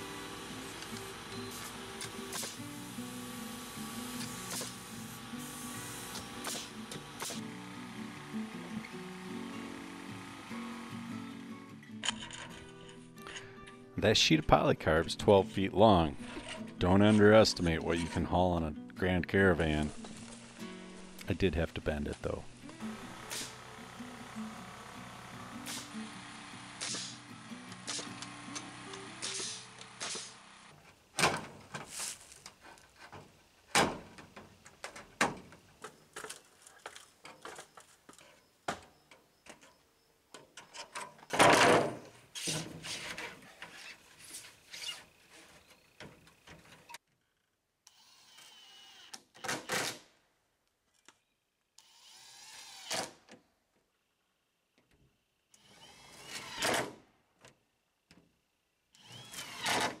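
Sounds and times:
nail gun shots: 0:02.0 - 0:02.6, 0:04.2 - 0:04.9, 0:05.5 - 0:07.5, 0:23.2 - 0:23.6, 0:25.6 - 0:26.0, 0:26.8 - 0:27.2, 0:27.8 - 0:28.6, 0:29.2 - 0:30.4, 0:49.3 - 0:50.1, 0:52.8 - 0:53.2, 0:56.3 - 0:57.0, 0:59.3 - 1:00.0
cordless drill whirring: 0:47.9 - 0:49.3, 0:51.8 - 0:53.1, 0:55.6 - 0:56.7, 0:59.0 - 1:00.0.

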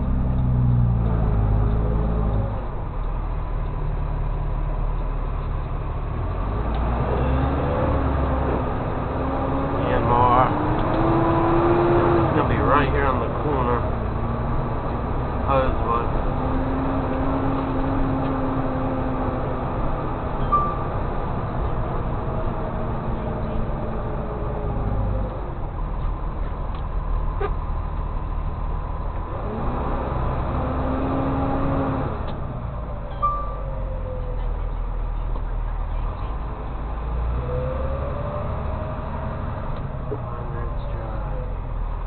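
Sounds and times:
truck engine and road rumble: 0:00.0 - 0:42.0
short high beep: 0:20.4 - 0:20.9, 0:33.1 - 0:33.7.

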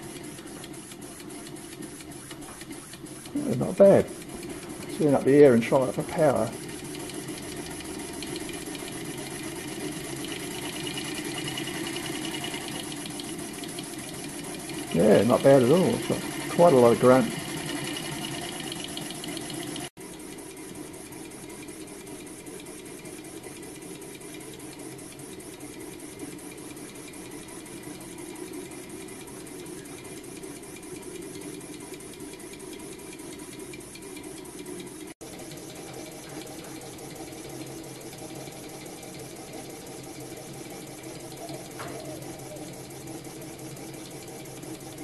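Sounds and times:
model steam engine chattering: 0:00.0 - 0:19.9.

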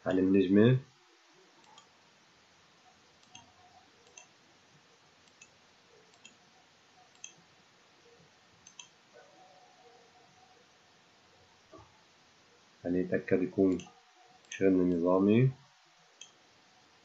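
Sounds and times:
low steady hiss: 0:00.0 - 0:17.0
computer mouse clicks: 0:01.6 - 0:01.9, 0:03.2 - 0:04.3, 0:05.2 - 0:06.4, 0:07.1 - 0:07.4, 0:08.6 - 0:09.0.

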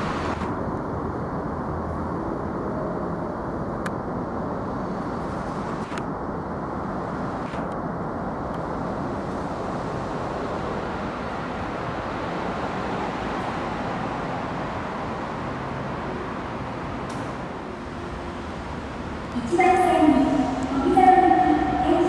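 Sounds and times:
train wheels on rail: 0:08.4 - 0:22.0.

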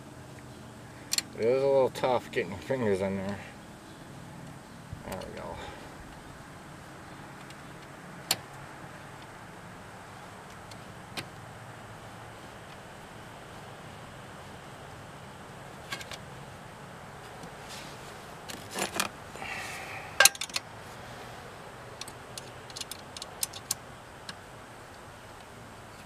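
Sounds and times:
wrench clinking on metal bolts: 0:20.2 - 0:20.6
small clicks: 0:22.0 - 0:26.0.

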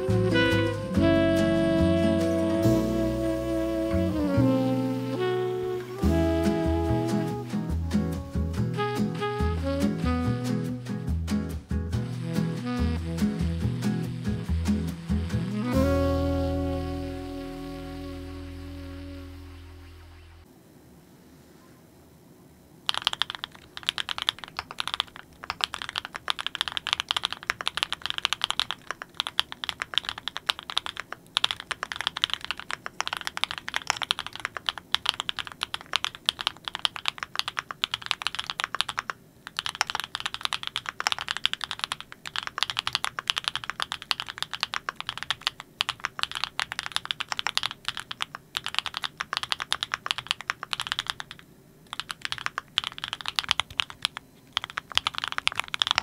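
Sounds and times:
mechanical keyboard typing: 0:22.9 - 0:56.0.

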